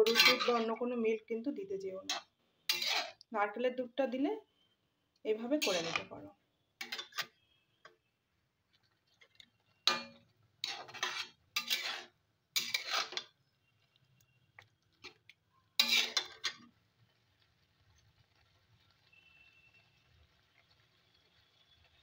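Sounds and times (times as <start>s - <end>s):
metal spatula scraping metal pan: 0.0s - 0.9s, 2.0s - 3.2s, 5.4s - 7.5s, 9.7s - 13.4s, 15.8s - 16.6s.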